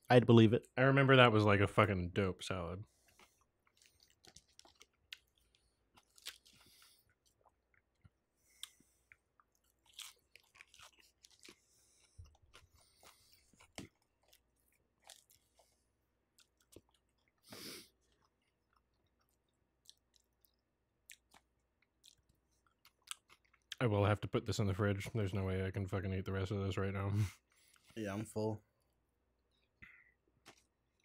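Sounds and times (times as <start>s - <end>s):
chewing and crunching: 2.8s - 23.8s.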